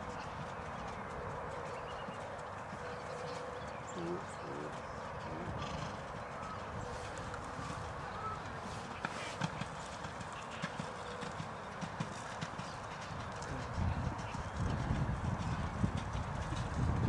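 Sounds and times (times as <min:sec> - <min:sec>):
horse hoofbeats on sand: 0:00.0 - 0:17.0.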